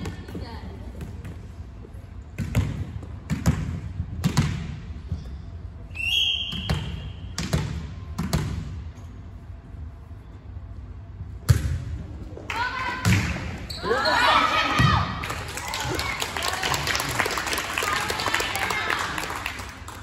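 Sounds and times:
ball bouncing on gym floor: 0:02.4 - 0:05.3, 0:06.5 - 0:09.0, 0:11.4 - 0:12.0
whistle blowing: 0:05.9 - 0:07.3.

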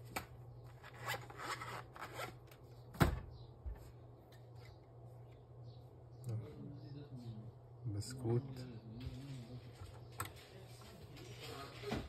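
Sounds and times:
steady low hum: 0:00.0 - 0:11.3
screwdriver scraping plastic: 0:00.7 - 0:02.4.

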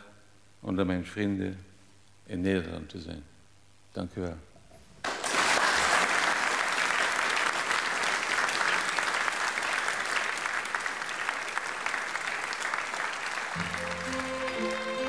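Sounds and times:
audience applauding: 0:05.0 - 0:15.0
music: 0:13.6 - 0:15.0.

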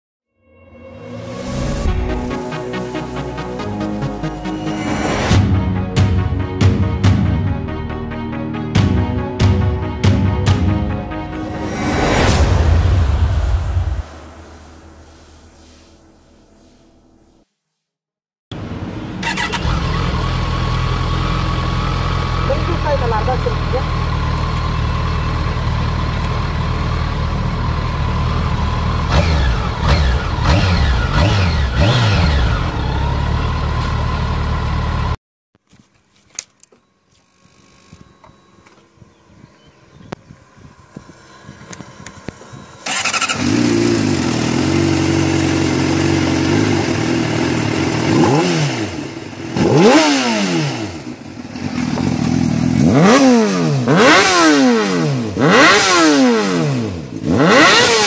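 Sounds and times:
motorcycle engine idling and revving: 0:18.6 - 0:35.2, 0:37.1 - 0:58.0
sportbike engine revving: 0:19.2 - 0:35.2, 0:40.6 - 0:58.0.

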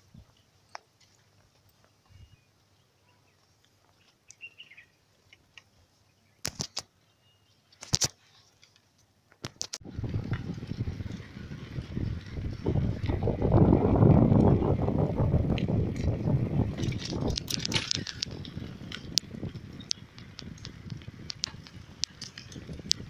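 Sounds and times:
faint bird chirp: 0:01.8 - 0:05.1, 0:06.0 - 0:07.7
sharp clicks: 0:06.4 - 0:06.9, 0:16.8 - 0:23.0
loud rough rushing noise: 0:09.8 - 0:23.0.

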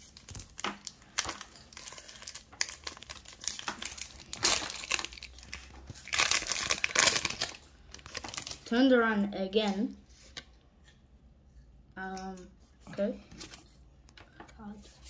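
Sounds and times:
foil wrapper crinkling: 0:00.0 - 0:08.7.

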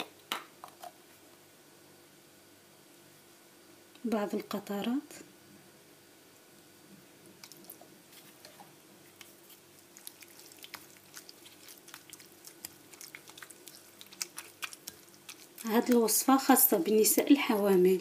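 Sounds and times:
low steady hum: 0:00.0 - 0:18.0
wooden spoon stirring wet paste: 0:07.4 - 0:18.0.

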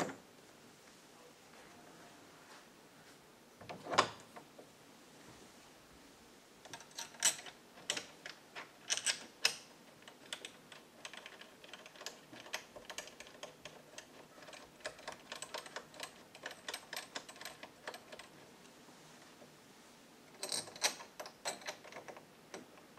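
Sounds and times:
door knob clicking and rattling: 0:06.7 - 0:18.3.

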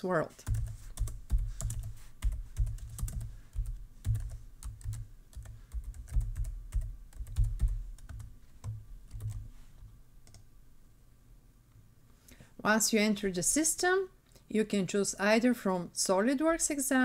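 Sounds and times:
typing on computer keyboard: 0:00.4 - 0:09.4.

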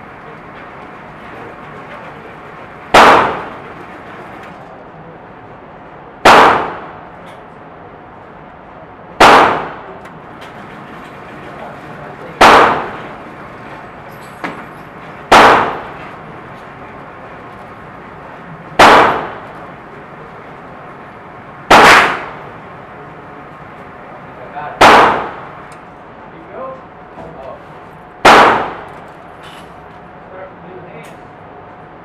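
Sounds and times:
gunshots echoing indoors: 0:02.8 - 0:04.2, 0:06.2 - 0:07.3, 0:09.2 - 0:10.0, 0:12.3 - 0:13.8, 0:15.2 - 0:16.4, 0:18.7 - 0:19.9, 0:21.1 - 0:22.7, 0:24.7 - 0:25.7, 0:28.2 - 0:29.0.

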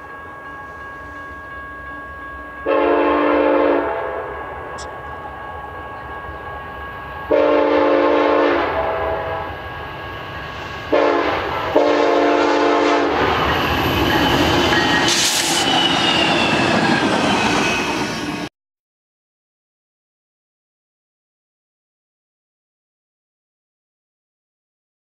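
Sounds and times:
locomotive rumbling past: 0:00.0 - 0:18.5
locomotive air horn blasts: 0:02.6 - 0:04.4, 0:07.3 - 0:09.5, 0:10.9 - 0:13.3.

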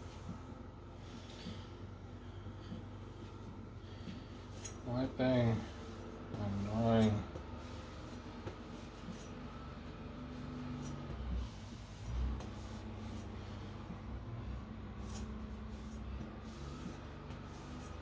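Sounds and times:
low hum: 0:00.0 - 0:18.0
cloth rubbing blade: 0:10.2 - 0:14.0, 0:14.9 - 0:18.0.

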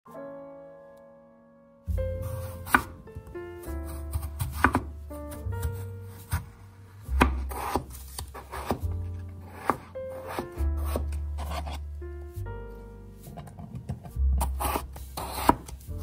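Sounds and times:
background music with bass line: 0:01.9 - 0:16.0
knife slicing on cutting board: 0:02.2 - 0:03.0, 0:03.8 - 0:06.5, 0:07.1 - 0:11.8, 0:13.2 - 0:16.0.

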